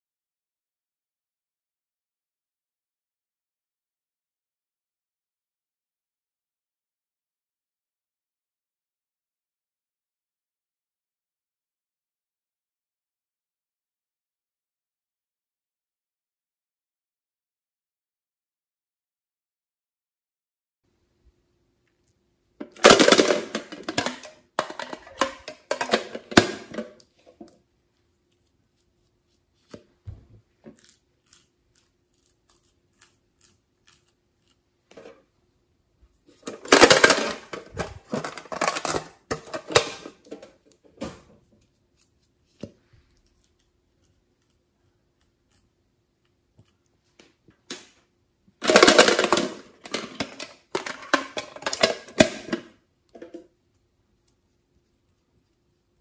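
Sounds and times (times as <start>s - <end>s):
metal tins clattering: 22.6s - 27.0s, 36.3s - 40.6s, 48.6s - 53.4s.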